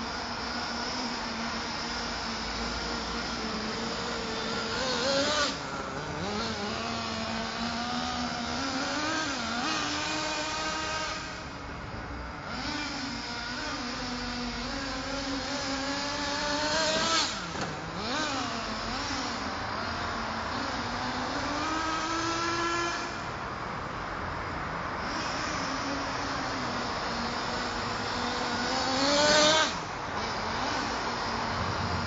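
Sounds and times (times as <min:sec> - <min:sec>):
model truck engine revving: 0:00.0 - 0:23.5, 0:25.0 - 0:32.0.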